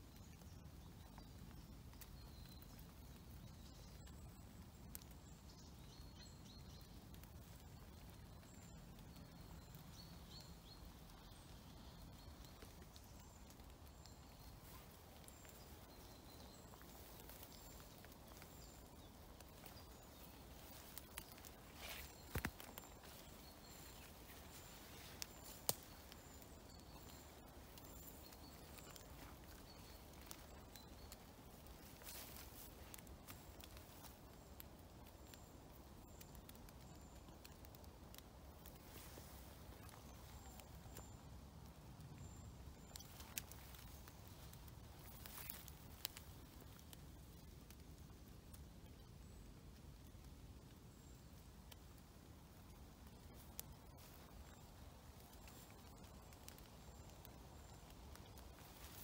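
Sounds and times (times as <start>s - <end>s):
footsteps on twigs and leaves: 13.9s - 34.4s, 58.2s - 59.0s.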